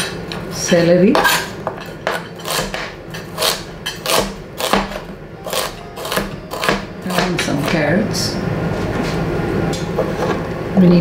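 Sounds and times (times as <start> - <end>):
knife chopping on cutting board: 2.0 - 7.9.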